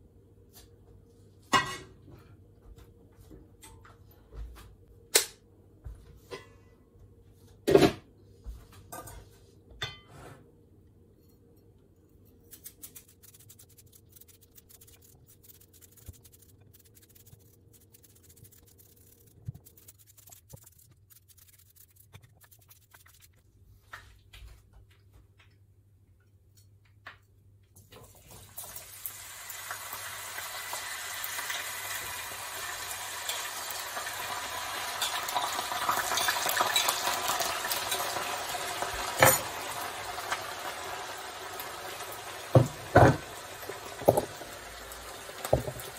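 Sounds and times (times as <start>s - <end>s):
potatoes sizzling in hot oil: 28.2s - 45.9s.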